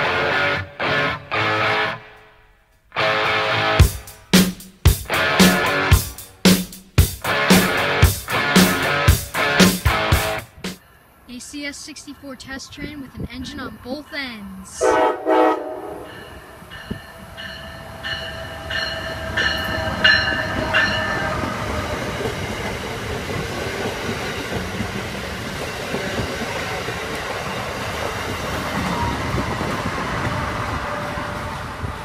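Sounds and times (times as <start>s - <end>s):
train cars rumbling past: 14.8s - 32.0s.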